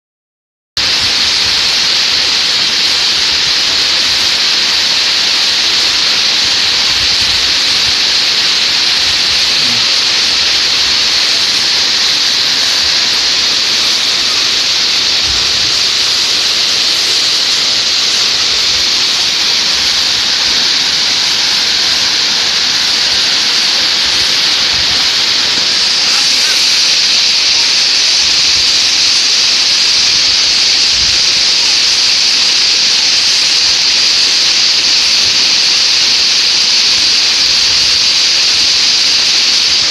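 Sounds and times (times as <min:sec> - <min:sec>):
waterfall rushing and splashing: 0:00.8 - 0:39.9.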